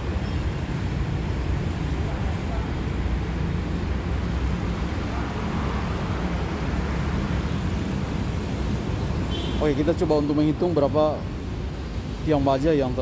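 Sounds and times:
traffic engines rumbling: 0:00.0 - 0:13.0.

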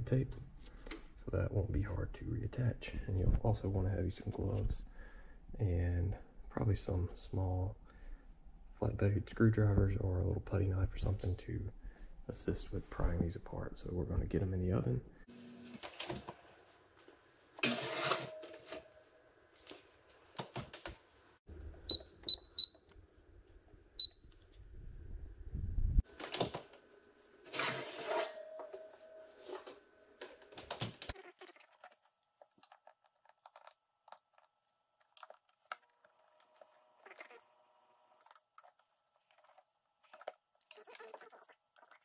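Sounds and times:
control panel beeps: 0:21.9 - 0:22.8, 0:24.0 - 0:24.2.

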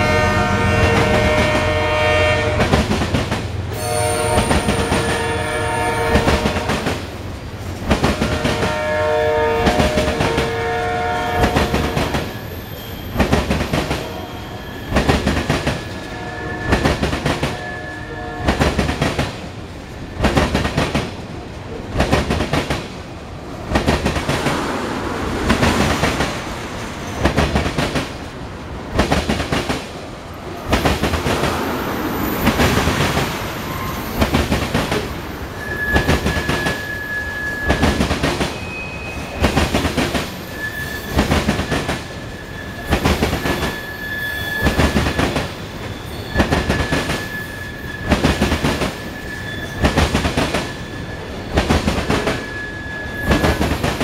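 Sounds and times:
locomotive horn blasts: 0:00.0 - 0:02.8, 0:03.8 - 0:06.8, 0:08.1 - 0:12.1, 0:13.9 - 0:14.8, 0:16.0 - 0:18.7
train wheels clicking over rail joints: 0:02.5 - 0:03.8, 0:06.1 - 0:08.8, 0:09.6 - 0:10.6, 0:11.4 - 0:14.2, 0:14.9 - 0:17.6, 0:18.4 - 0:38.6, 0:39.3 - 0:43.8, 0:44.5 - 0:52.6, 0:53.2 - 0:54.0
high wheel squeal: 0:09.6 - 0:18.5, 0:24.2 - 0:27.8, 0:30.7 - 0:54.0.

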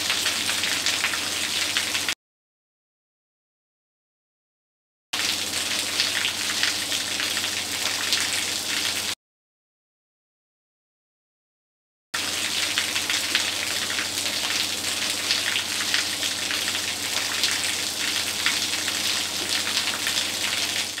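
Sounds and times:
heavy rain falling: 0:00.0 - 0:02.2, 0:12.2 - 0:21.0.

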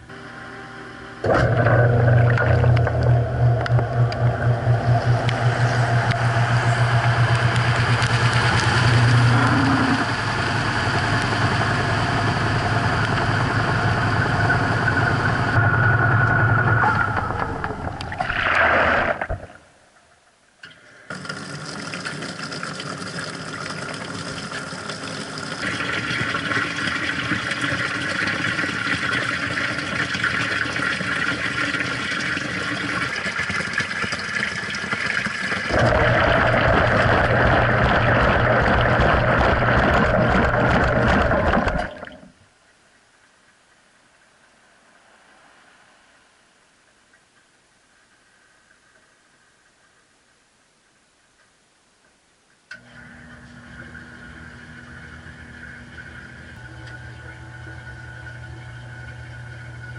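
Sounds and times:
washing machine motor hum: 0:00.0 - 0:18.2, 0:21.1 - 0:42.2, 0:52.7 - 0:59.9
water pouring into tub: 0:01.3 - 0:11.0, 0:16.9 - 0:19.6, 0:21.1 - 0:42.3.

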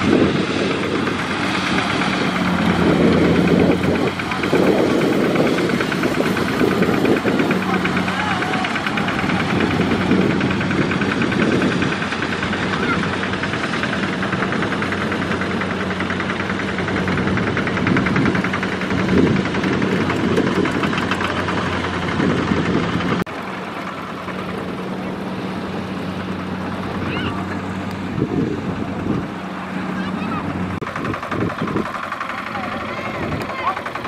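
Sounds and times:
tractor diesel engine knocking: 0:00.0 - 0:34.0.

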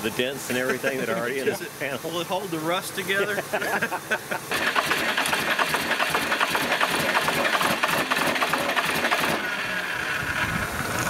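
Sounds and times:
fluid spraying: 0:01.6 - 0:09.6
diesel engine cranking on starter: 0:04.5 - 0:11.0.

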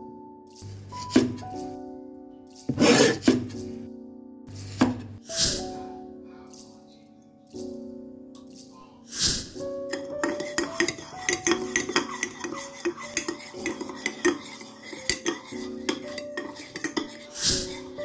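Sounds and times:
metal spoon clinking in bowl: 0:09.9 - 0:18.0.

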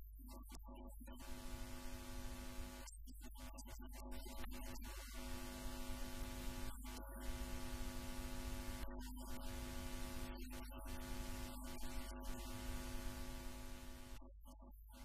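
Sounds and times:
low steady hum: 0:01.2 - 0:02.8, 0:05.3 - 0:14.4.

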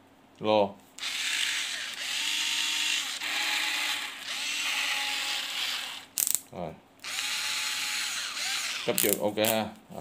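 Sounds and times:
cordless screwdriver motor whirring: 0:01.0 - 0:06.2, 0:07.0 - 0:09.2.

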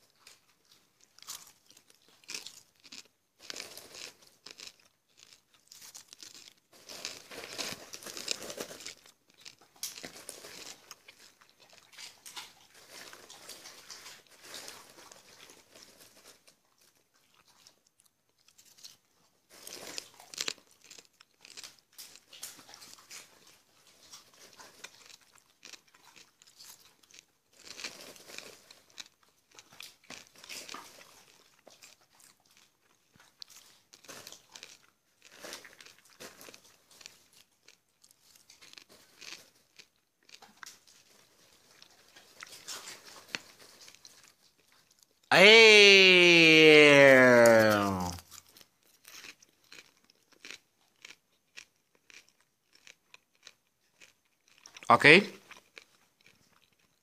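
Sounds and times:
popcorn being chewed: 0:00.0 - 0:57.0.

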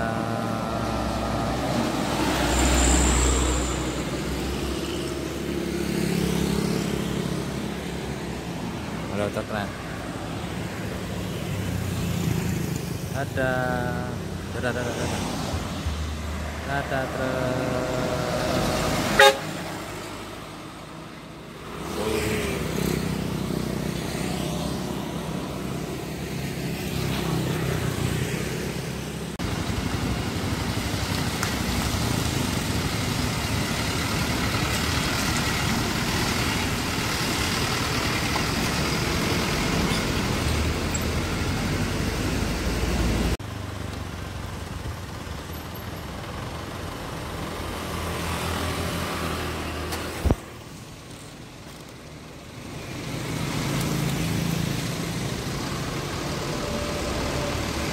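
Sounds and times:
road traffic passing: 0:00.0 - 0:57.9
vehicle horn tooting: 0:19.1 - 0:19.6.

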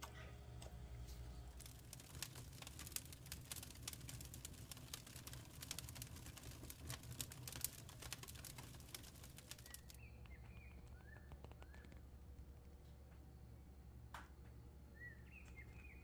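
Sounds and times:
wood fire crackling: 0:00.0 - 0:14.5
low steady hum: 0:00.0 - 0:16.0
bird chirps: 0:09.6 - 0:12.1, 0:14.9 - 0:16.0.

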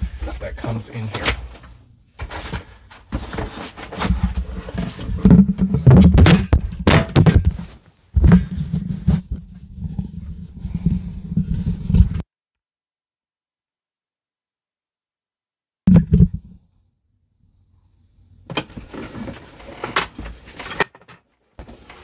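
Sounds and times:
microphone handling thumps: 0:04.0 - 0:12.2, 0:15.9 - 0:16.6
scraping rubs against microphone: 0:07.5 - 0:12.2.

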